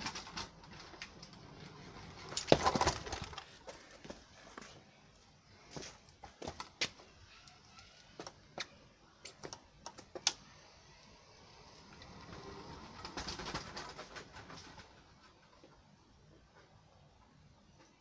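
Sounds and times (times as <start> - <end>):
scooter rattling and rolling: 0.0 - 4.8, 11.2 - 16.0.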